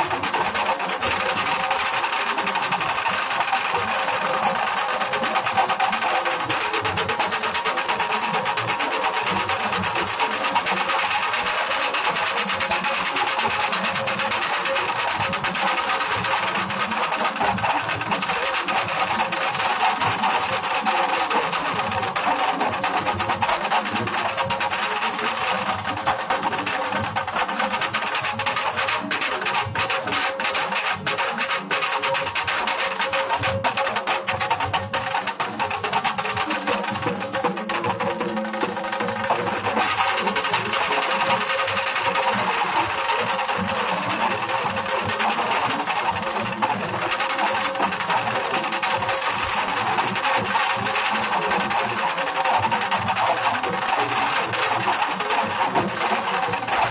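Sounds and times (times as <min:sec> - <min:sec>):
dhol drum band playing: 0:00.0 - 0:56.9.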